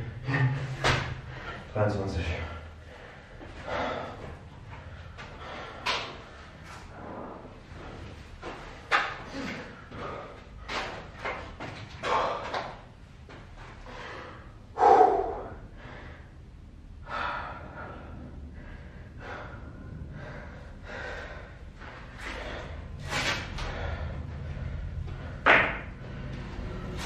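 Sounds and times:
man panting and gasping: 2.6s - 7.0s, 9.2s - 12.9s, 13.7s - 26.2s.

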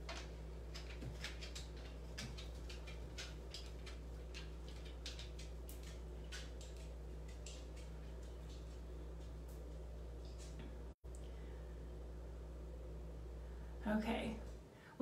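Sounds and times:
dog claws clicking on wooden floor: 0.0s - 9.4s
low electrical hum: 0.0s - 15.0s.

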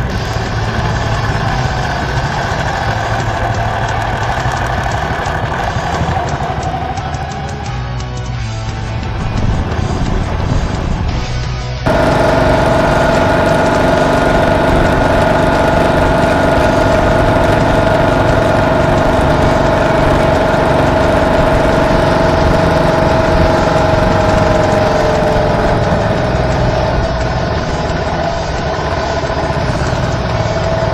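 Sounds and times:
motorcycle engine running: 0.0s - 30.9s
steady high tone: 11.9s - 28.2s.

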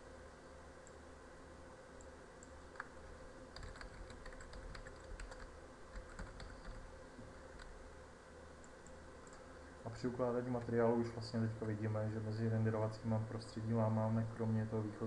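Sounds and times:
faint steady hum: 0.0s - 15.0s
keyboard typing: 3.5s - 6.9s.

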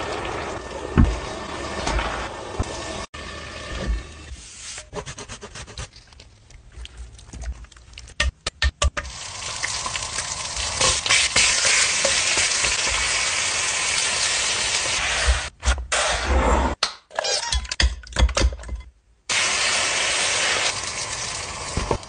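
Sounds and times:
food sizzling in frying pan: 19.3s - 22.0s.

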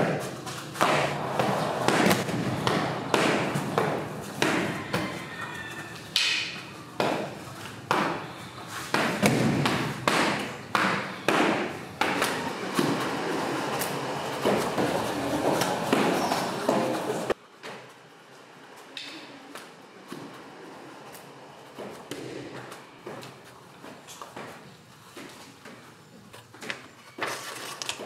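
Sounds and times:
echoing thuds and knocks: 0.8s - 5.0s, 8.9s - 13.1s.

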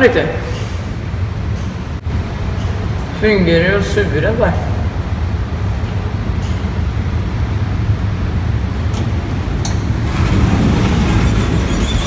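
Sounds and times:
lift running with low rumble: 0.0s - 12.0s
lift doors sliding open: 8.7s - 12.0s.

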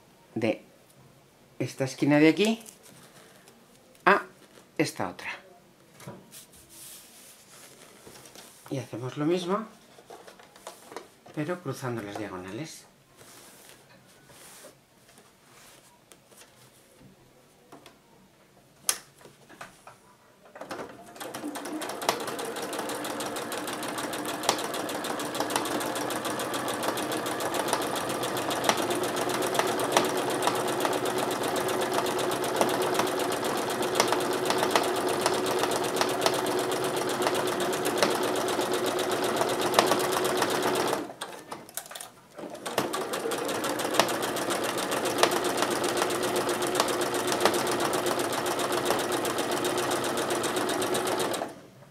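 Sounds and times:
electric sewing machine running: 21.1s - 41.2s, 42.4s - 51.6s.

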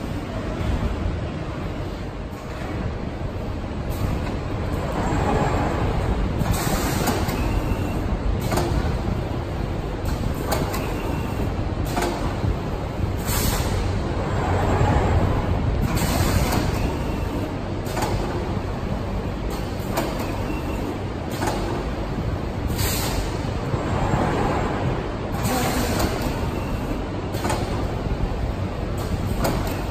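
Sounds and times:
machine hum: 0.0s - 29.9s.

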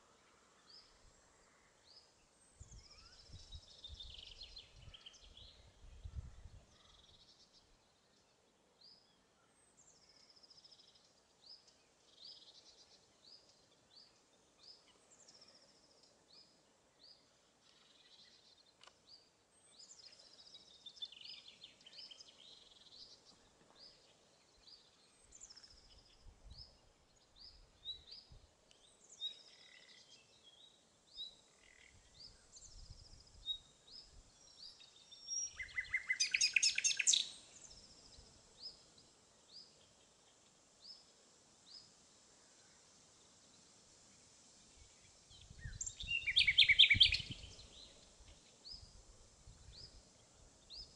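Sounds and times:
nightingale singing: 9.8s - 41.0s, 44.8s - 49.0s.

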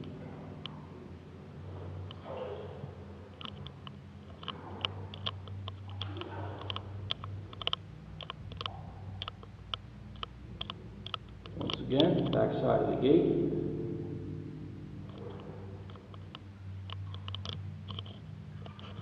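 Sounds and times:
steady low hum: 0.0s - 19.0s
light clicks: 2.0s - 12.5s, 15.1s - 19.0s.

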